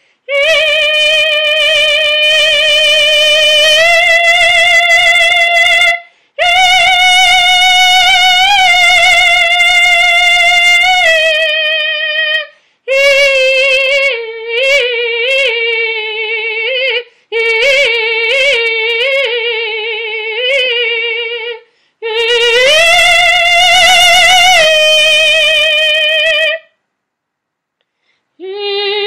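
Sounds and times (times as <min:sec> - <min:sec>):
short breaths: 0:00.0 - 0:00.3, 0:06.0 - 0:06.4, 0:12.5 - 0:12.9, 0:17.1 - 0:17.3, 0:21.6 - 0:22.0, 0:27.8 - 0:28.4
woman singing unaccompanied: 0:00.0 - 0:26.7, 0:28.4 - 0:29.0.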